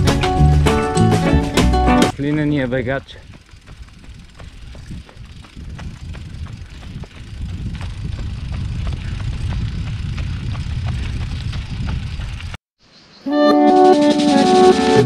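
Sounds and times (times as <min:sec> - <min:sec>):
guitar music: 0:00.0 - 0:02.1, 0:13.3 - 0:15.0
running footfalls: 0:01.6 - 0:12.6
wind noise on microphone: 0:02.1 - 0:12.6.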